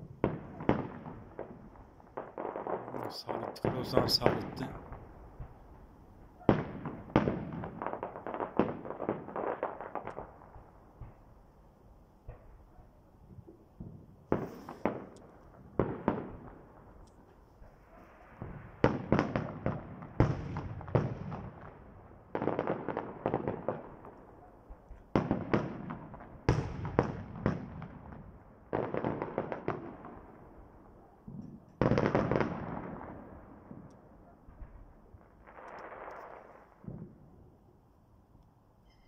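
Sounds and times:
fireworks bursting: 0.0 - 11.4, 13.7 - 21.8, 34.6 - 37.2.

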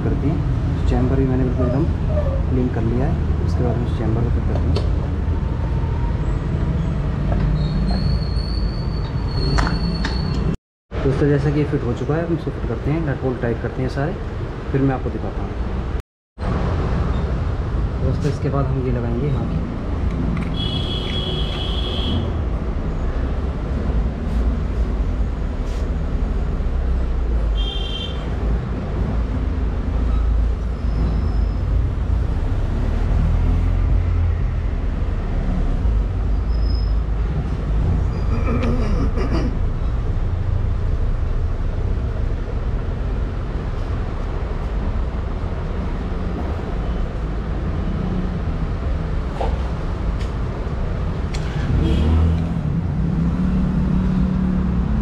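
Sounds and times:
low rumble of road traffic: 0.0 - 55.0
short high-pitched squeaks: 7.6 - 10.6.

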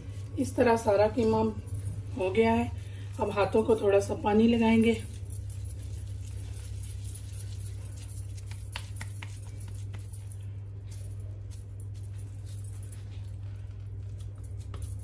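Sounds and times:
steady low hum: 0.0 - 15.0
bangles clinking: 1.2 - 15.0
wet hands patting mince: 8.3 - 10.1.

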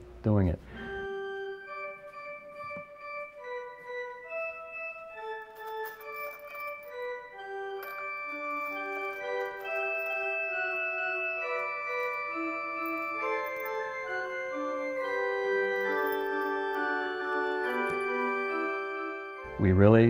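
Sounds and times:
pipe organ held chords: 0.0 - 20.0.

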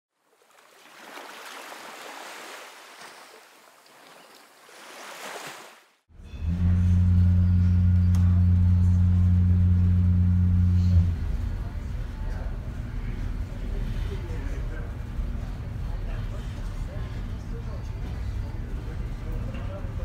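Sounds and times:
sea waves washing in: 0.4 - 6.0
ship engines droning: 6.1 - 20.0.

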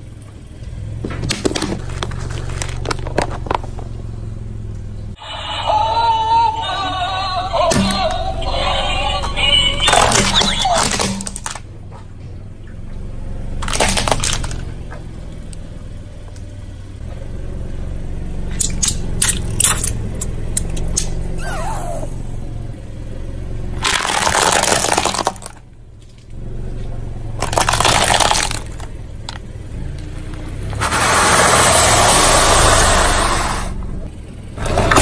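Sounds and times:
car engine running low: 0.0 - 35.0
tyre crushing plastic and pasta: 1.1 - 3.9, 23.8 - 25.6, 27.4 - 29.4
sharp cracks: 13.6 - 14.7, 23.8 - 25.6, 27.4 - 29.5
loud crunching bursts: 23.8 - 25.6, 27.4 - 28.9, 30.8 - 33.8.

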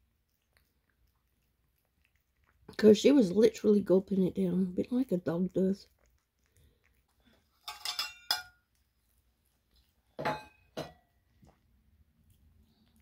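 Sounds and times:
steel food bowl clinking: 7.6 - 8.6.

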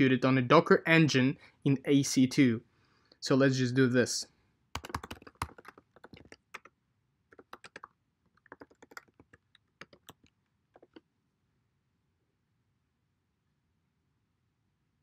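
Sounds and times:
typing on keyboard: 4.8 - 6.7, 7.3 - 11.0.

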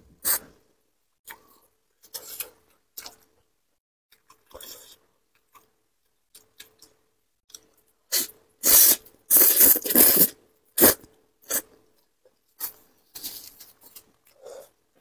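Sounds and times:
chewing: 4.1 - 7.8
person slurping noodles: 8.1 - 11.6.

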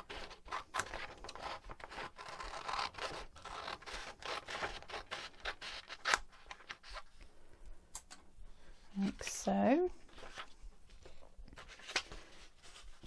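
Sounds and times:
paper being cut: 0.0 - 6.3.

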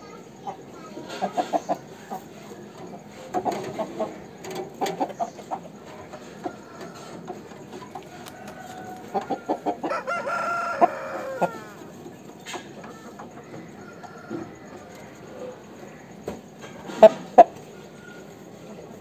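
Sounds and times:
roosters clucking: 0.0 - 19.0
rooster crowing: 6.2 - 12.0, 12.8 - 16.1.

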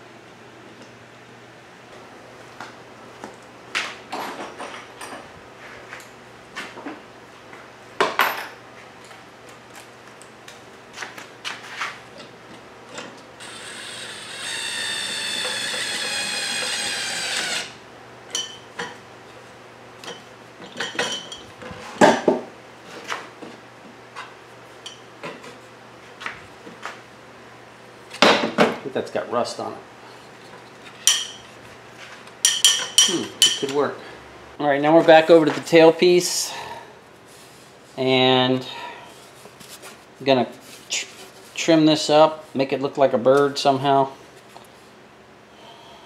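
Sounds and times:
cordless screwdriver whining: 13.4 - 17.8.

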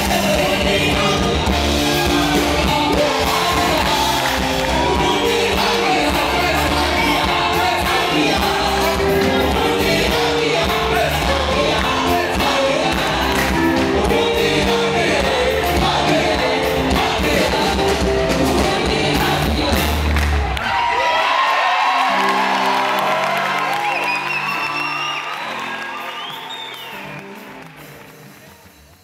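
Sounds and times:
drum beat: 0.0 - 20.1
people singing: 0.0 - 20.2
bass line: 0.0 - 20.6
keyboard chords: 0.0 - 20.6.

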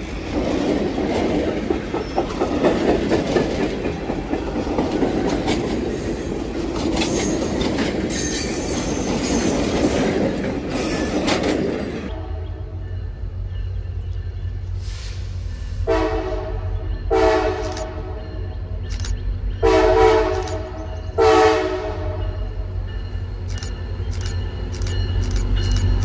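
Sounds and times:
locomotive chime horn blasts: 12.1 - 13.0, 15.8 - 18.7, 19.6 - 22.7.

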